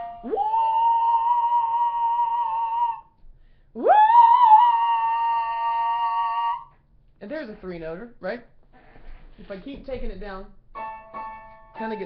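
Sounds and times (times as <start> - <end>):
man singing in falsetto: 0.0 - 3.2, 3.8 - 6.7.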